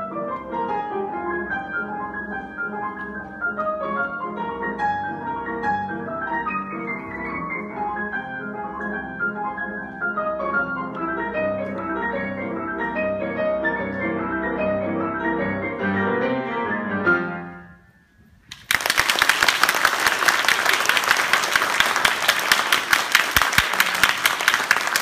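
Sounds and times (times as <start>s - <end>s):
piano tarantella: 0.0s - 18.0s
audience applause: 18.5s - 25.0s.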